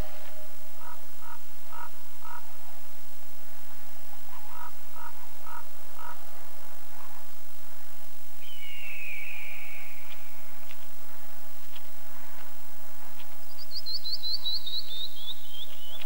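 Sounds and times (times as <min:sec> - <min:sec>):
steady low hum: 0:00.0 - 0:08.5
frog croaking: 0:00.2 - 0:02.5, 0:04.4 - 0:06.2.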